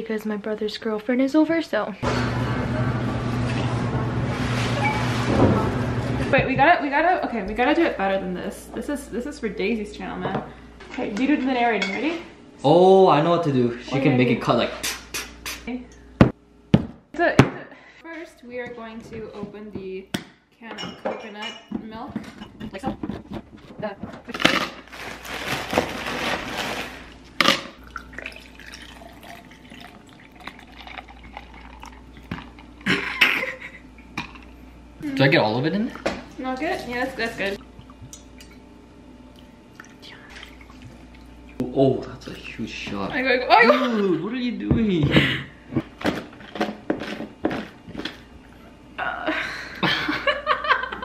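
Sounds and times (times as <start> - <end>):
juice pouring over ice: 26.0 - 33.0.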